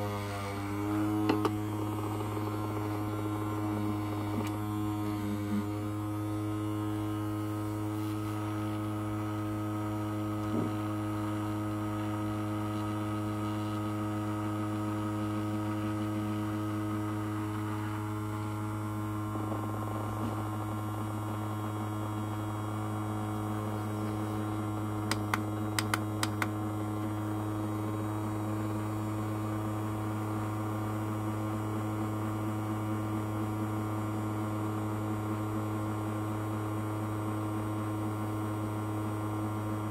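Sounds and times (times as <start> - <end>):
ultrasonic cleaner humming: 0.0 - 30.3.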